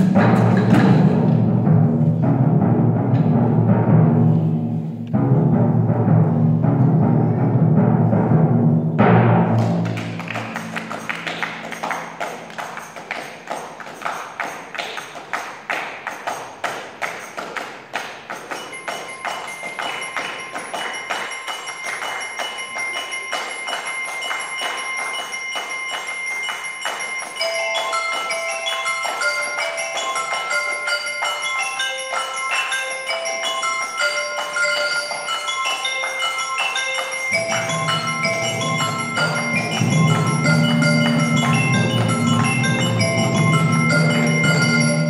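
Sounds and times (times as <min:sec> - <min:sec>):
fast pulse of struck percussion: 0:05.2 - 0:17.7, 0:37.3 - 0:45.0
mallet keyboard melody: 0:09.6 - 0:45.0
sustained ringing tones: 0:18.5 - 0:45.0.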